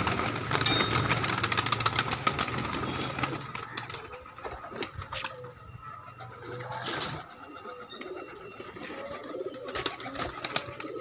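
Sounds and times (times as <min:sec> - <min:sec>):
pigeons flapping wings: 0:00.0 - 0:05.5, 0:08.6 - 0:11.0.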